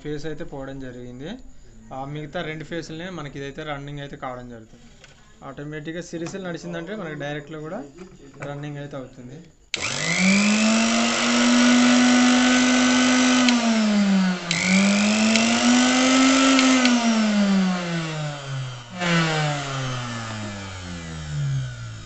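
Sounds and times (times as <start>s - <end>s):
mixer motor whining: 9.7s - 22.0s
switch click: 13.4s - 13.7s, 14.4s - 15.7s, 16.4s - 17.0s.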